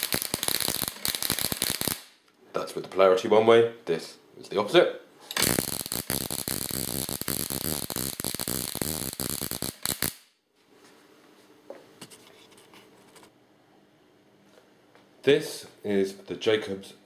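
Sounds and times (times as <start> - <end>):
electric sparks crackling: 0.0 - 2.2, 5.4 - 10.3.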